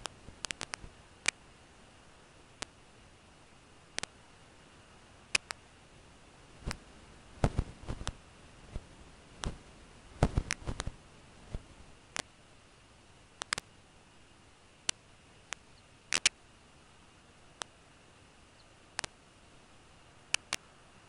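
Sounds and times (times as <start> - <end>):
nest sticks clicking and crackling: 0.0 - 1.4, 3.9 - 4.2, 10.2 - 10.9, 13.4 - 13.7, 14.8 - 16.4, 20.3 - 20.7
faint steady hiss: 0.0 - 21.0.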